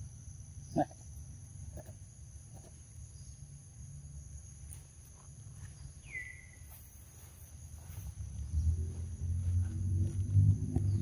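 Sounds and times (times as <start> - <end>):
low rumble: 8.0 - 11.0.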